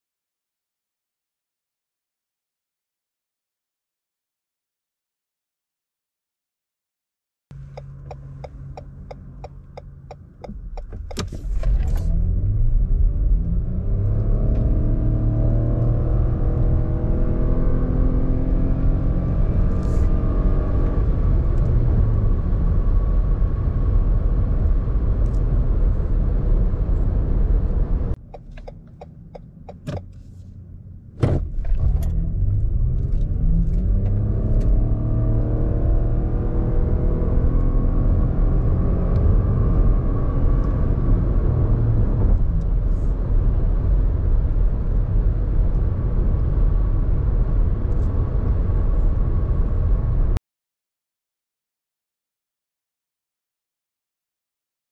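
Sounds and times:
car engine accelerating: 7.5 - 50.4
road rumble inside car: 7.5 - 50.4.

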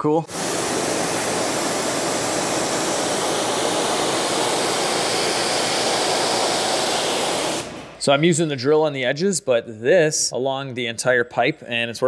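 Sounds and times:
pressure washer spraying water: 0.3 - 8.1.

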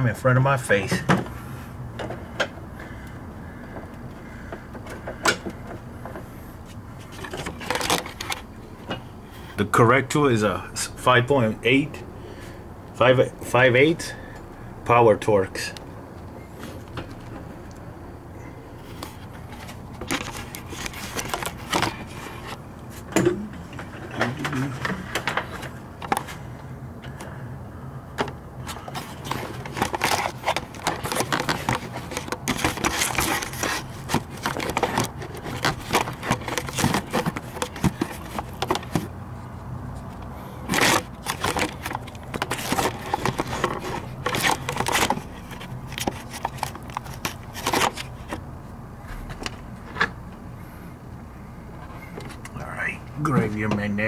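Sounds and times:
low steady hum: 0.0 - 54.0
tools clicking and scraping: 28.2 - 39.1, 40.0 - 48.4.

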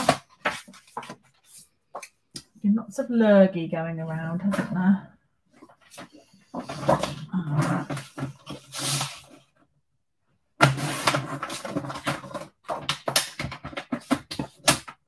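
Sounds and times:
rustling handling noise: 0.0 - 2.3.

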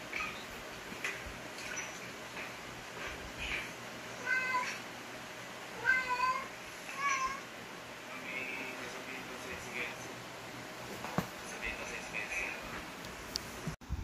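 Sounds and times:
cat meowing: 4.2 - 4.8, 5.8 - 7.4.

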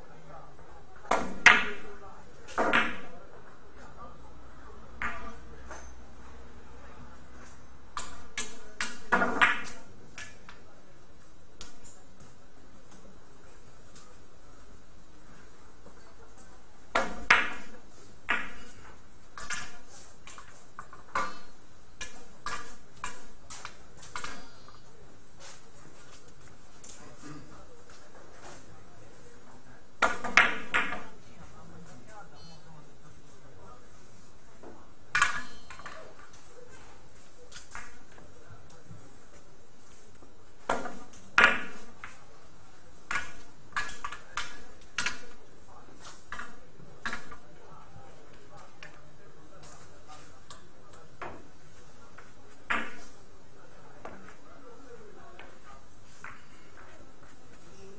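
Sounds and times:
billiard balls clacking: 8.0 - 10.4, 40.7 - 42.2.

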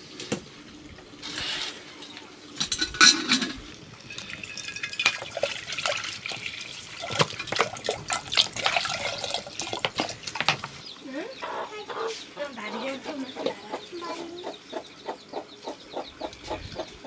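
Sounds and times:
water splashing and dripping: 0.0 - 10.8.

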